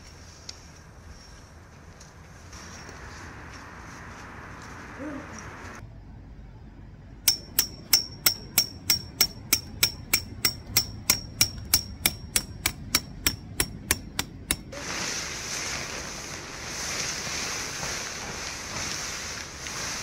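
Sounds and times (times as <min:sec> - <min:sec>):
hammer striking metal tent peg: 0:07.3 - 0:14.8.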